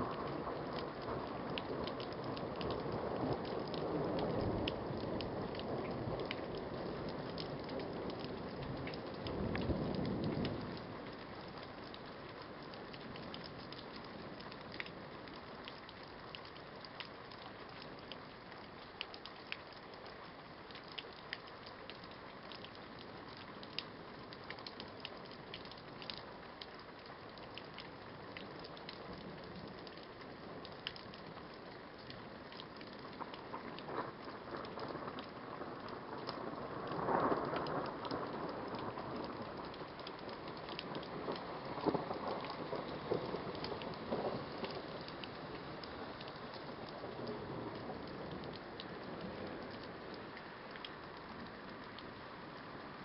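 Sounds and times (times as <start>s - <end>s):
low rumble of thunder: 0.0s - 12.1s, 33.0s - 50.2s
steady rain: 0.0s - 53.0s.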